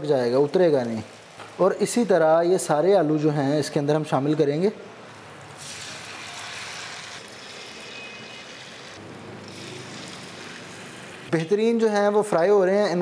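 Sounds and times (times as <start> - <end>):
food deep-frying in oil: 5.1 - 11.8.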